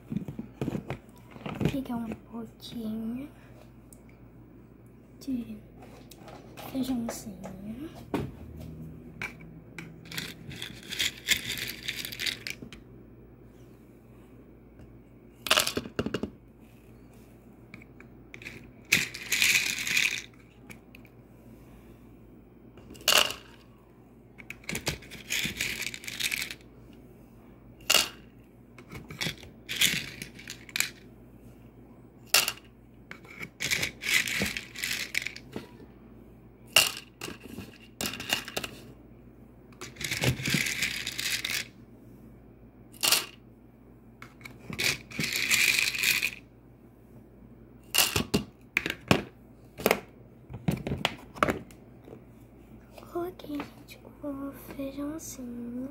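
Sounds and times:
beans rattling in pot: 10.0 - 12.6, 18.3 - 20.3, 24.6 - 26.6, 33.5 - 35.4, 39.8 - 41.7, 44.7 - 46.4.

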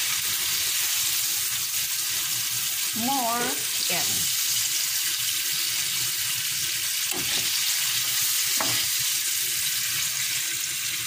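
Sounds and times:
chicken sizzling in hot oil: 0.0 - 11.0
spoon knocking on pan: 7.1 - 7.6, 8.6 - 9.0.

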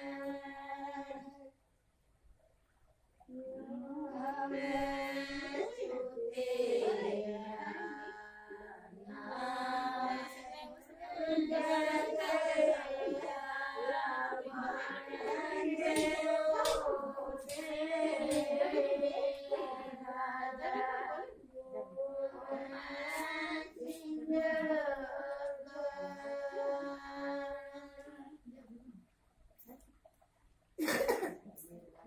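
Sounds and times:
women singing folk song: 0.0 - 1.6, 3.3 - 28.5.

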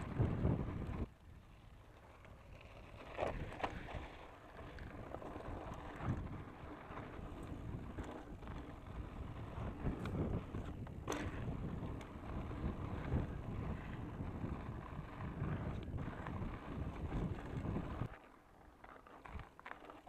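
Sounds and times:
wind buffeting microphone: 0.0 - 1.5, 4.8 - 18.2
bike clicks and rattles: 0.0 - 20.0
bike tyre rumble on gravel: 0.0 - 20.0.

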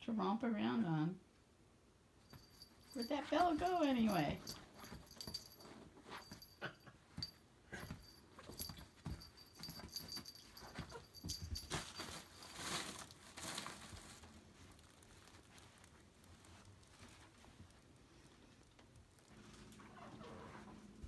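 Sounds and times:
cat collar bell jingling: 2.2 - 13.8
fabric rustling: 7.2 - 21.0.

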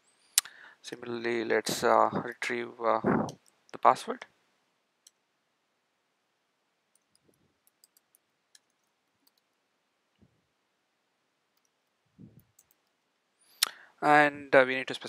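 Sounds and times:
keyboard keys typing: 6.9 - 9.5, 11.6 - 13.0.

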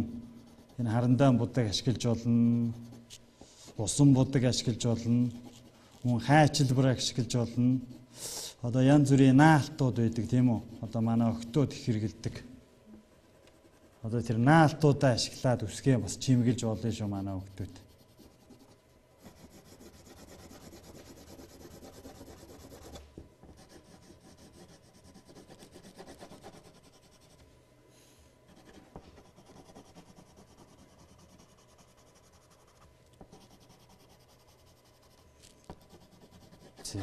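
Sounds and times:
pencil scratching on paper: 0.2 - 1.0, 4.9 - 6.8, 13.5 - 14.1, 16.6 - 27.4, 28.5 - 37.0.

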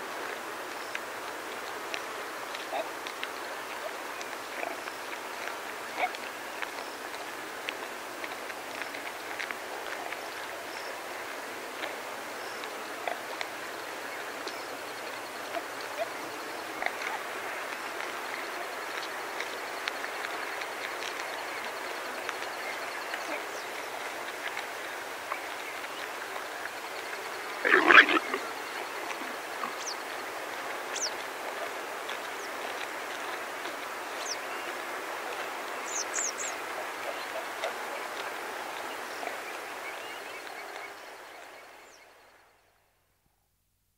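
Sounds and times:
wind in grass: 0.0 - 42.8
warthogs snuffling while grazing: 0.1 - 42.0
soft grazing clicks: 0.1 - 42.2
small birds chirping: 20.6 - 30.3, 30.9 - 31.2, 34.2 - 37.5
small birds calling: 30.9 - 31.2, 35.8 - 37.6.

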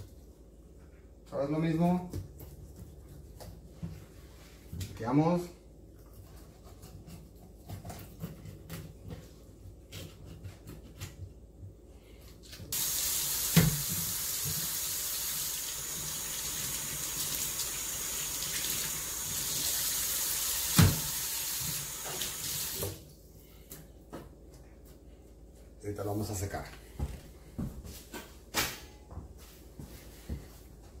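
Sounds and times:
faucet water running: 12.7 - 23.0.

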